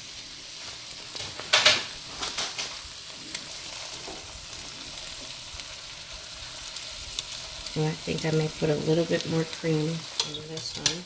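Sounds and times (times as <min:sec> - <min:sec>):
sauce sizzling in a skillet: 0:00.0 - 0:11.0.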